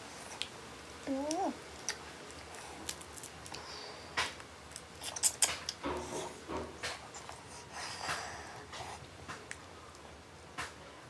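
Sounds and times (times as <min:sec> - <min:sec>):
shellfish shell cracking: 0:01.3 - 0:03.6
chewing and mouth sounds: 0:04.7 - 0:06.1.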